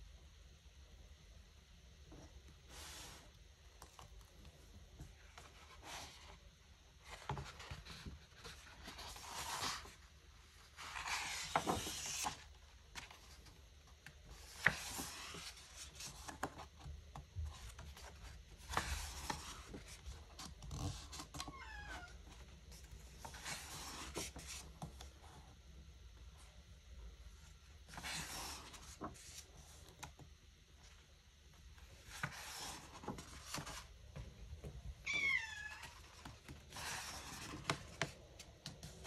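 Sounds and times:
book pages turning: 7.0 - 25.4, 27.8 - 30.2, 31.8 - 33.9, 35.8 - 39.0.

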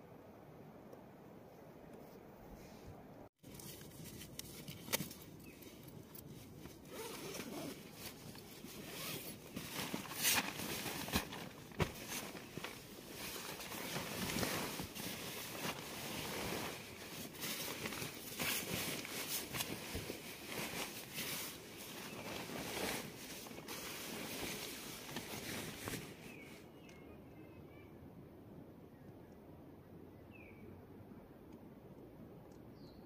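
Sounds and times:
nylon sleeping bag rustling: 3.4 - 26.6
zipper being pulled: 6.8 - 11.3.

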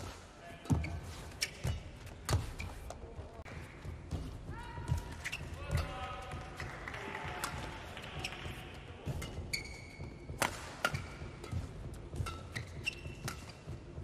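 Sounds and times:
shoes squeaking on court: 0.0 - 3.3, 4.9 - 5.9, 8.1 - 14.0
rackets striking shuttlecock: 9.0 - 14.0.

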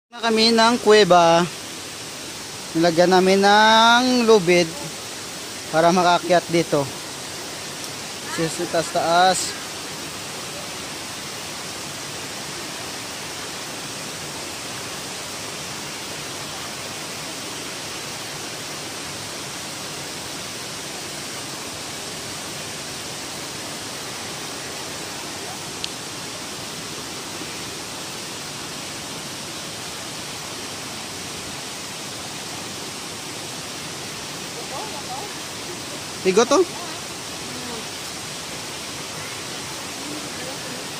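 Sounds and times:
stream water rushing: 0.1 - 40.9.

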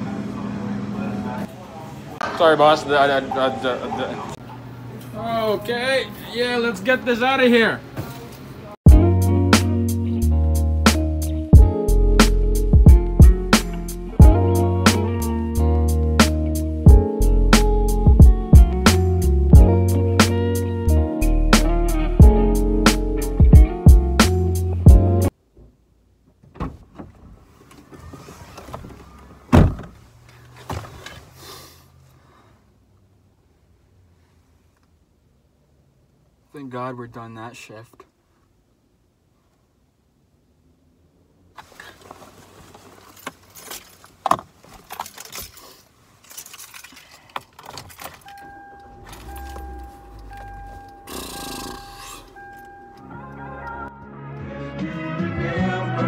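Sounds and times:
car door shutting: 26.4 - 31.3, 47.9 - 52.9
jacket rustling: 41.6 - 47.2
car keys jangling: 42.8 - 53.0
key going into ignition: 44.8 - 53.0
car warning chime beeping: 48.2 - 53.9.

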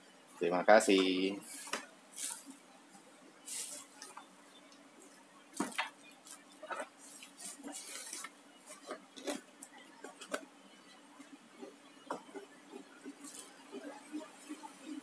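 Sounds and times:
bubble wrap crinkling: 2.1 - 2.6.

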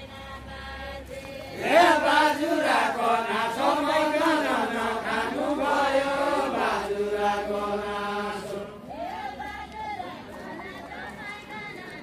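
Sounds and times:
men singing together: 0.8 - 8.8.

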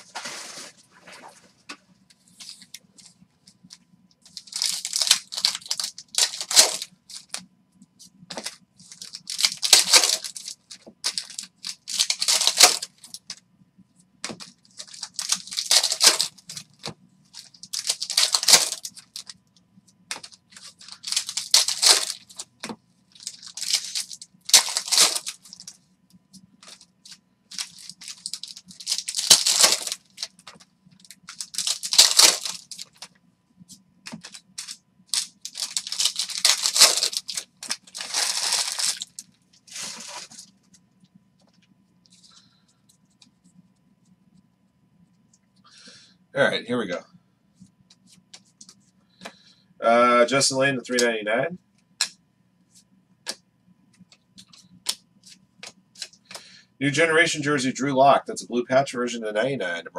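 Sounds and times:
faint low hum: 0.0 - 59.9
foil pack tearing and crinkling: 4.3 - 7.4, 8.3 - 13.2, 14.2 - 19.4, 20.1 - 25.7, 26.6 - 33.1, 34.1 - 40.5.

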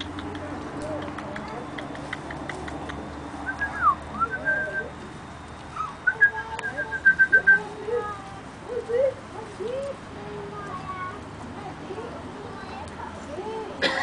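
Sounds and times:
whistle-like bird calls: 3.5 - 4.9.

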